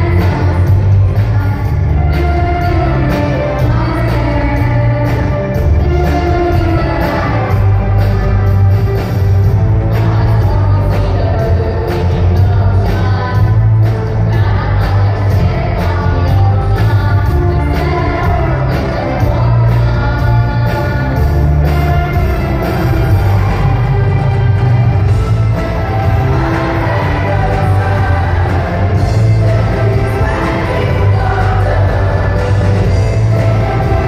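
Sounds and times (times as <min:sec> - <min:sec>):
electric string orchestra playing: 0:00.0 - 0:10.2, 0:17.3 - 0:34.0
heavy steady bass: 0:00.0 - 0:34.0.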